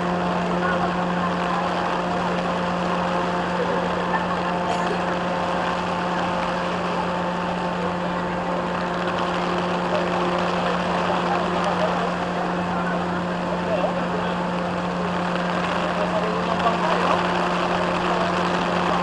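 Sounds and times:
engine hum: 0:00.0 - 0:19.0
heavy rain on water: 0:00.0 - 0:19.0.

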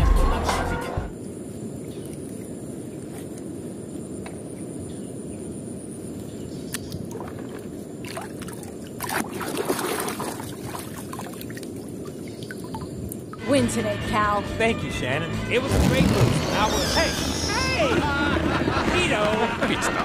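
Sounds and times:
hand splashing in muddy water: 0:07.1 - 0:11.7.

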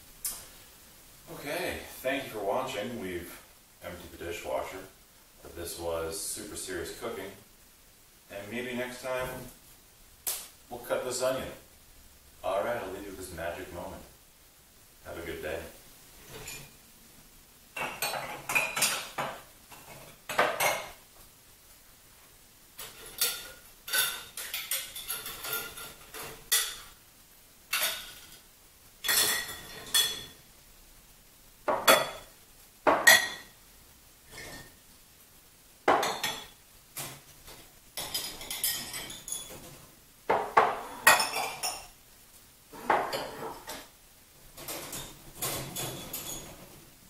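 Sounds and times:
dishes clinking: 0:16.2 - 0:16.8, 0:17.8 - 0:21.0, 0:22.8 - 0:27.0, 0:27.7 - 0:28.4, 0:29.0 - 0:30.4, 0:31.7 - 0:33.6, 0:34.3 - 0:34.8, 0:35.9 - 0:42.0, 0:42.8 - 0:43.9, 0:44.6 - 0:46.8.

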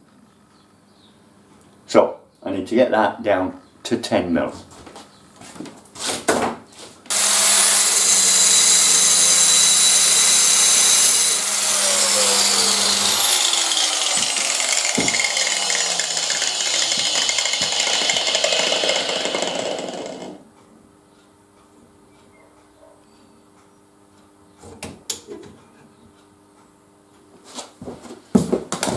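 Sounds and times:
angle grinder grinding steel: 0:07.1 - 0:20.4
machine whine spinning down: 0:07.1 - 0:20.4
motor noise: 0:07.1 - 0:20.4.

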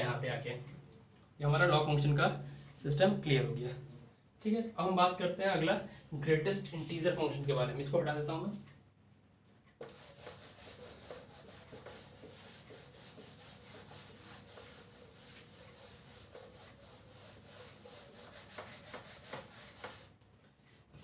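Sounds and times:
eraser rubbing on whiteboard: 0:09.8 - 0:20.8.

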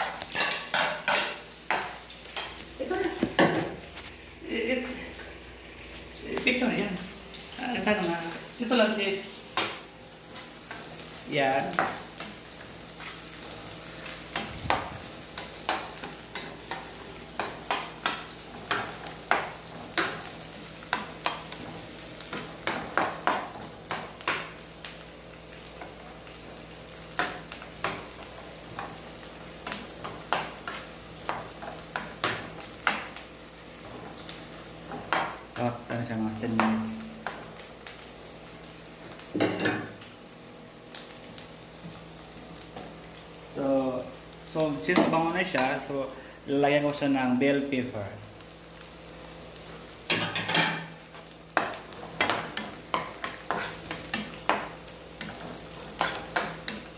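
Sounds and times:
spatula scraping and tapping pan: 0:00.0 - 0:02.6, 0:51.6 - 0:56.9
onion and garlic sizzling in oil: 0:00.0 - 0:56.9.

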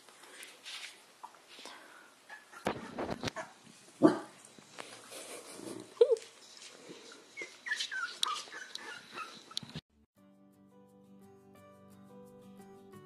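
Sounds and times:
dog barking: 0:02.3 - 0:04.4
dog whining: 0:07.1 - 0:09.8.

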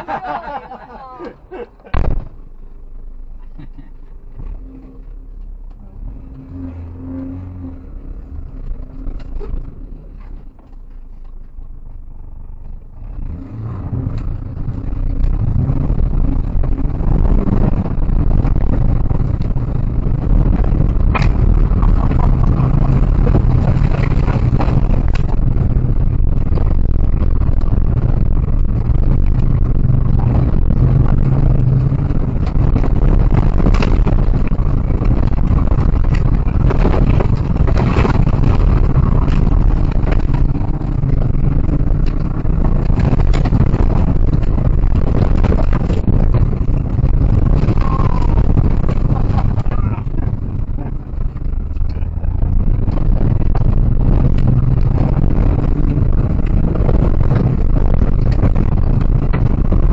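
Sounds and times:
car engine accelerating: 0:00.0 - 0:59.9
gravel and bumping noise: 0:00.0 - 0:59.9.

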